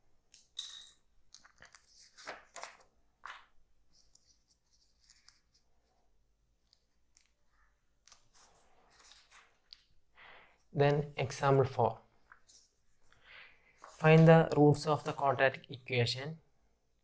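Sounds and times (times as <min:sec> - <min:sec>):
paper sheets rustling: 0:01.4 - 0:05.7, 0:08.0 - 0:09.6, 0:13.8 - 0:15.2.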